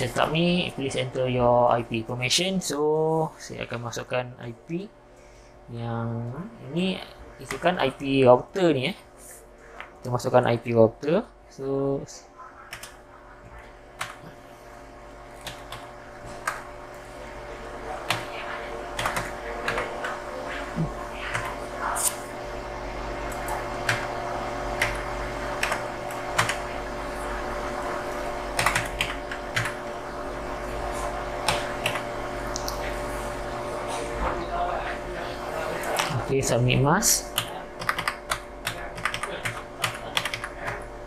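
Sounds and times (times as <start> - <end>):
steady hum: 0.0 - 41.0
computer keyboard keys tapping: 12.7 - 13.0, 14.0 - 14.2, 15.4 - 16.6, 18.0 - 20.2, 24.8 - 26.6, 28.5 - 29.8, 31.4 - 32.8, 37.4 - 40.8.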